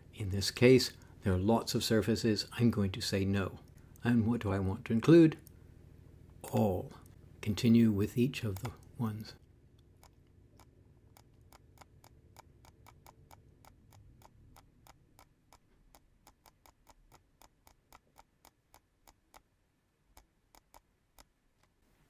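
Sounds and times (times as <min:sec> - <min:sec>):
computer mouse clicking: 0:08.5 - 0:08.9, 0:09.9 - 0:19.5, 0:20.1 - 0:21.8.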